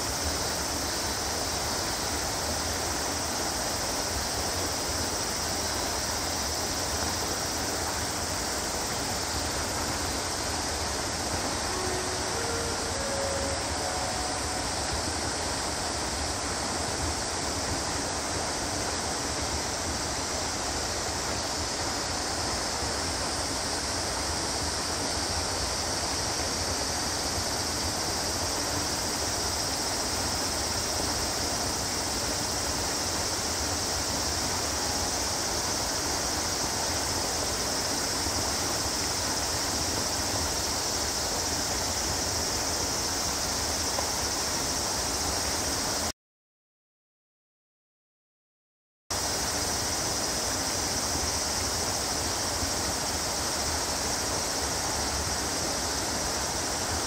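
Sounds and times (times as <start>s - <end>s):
high-pitched hiss: 0.0s - 46.1s, 49.1s - 57.0s.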